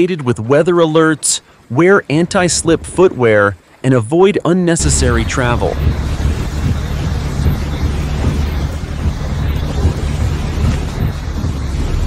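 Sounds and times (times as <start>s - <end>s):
wind buffeting microphone: 4.8s - 12.0s.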